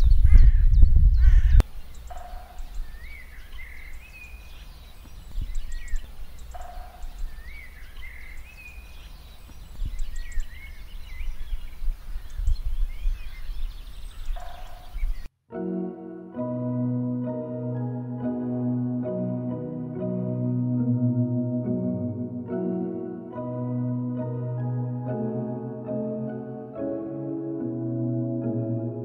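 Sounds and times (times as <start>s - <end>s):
faint bird chirps: 0.0s - 15.3s
bird warbling: 0.1s - 15.3s.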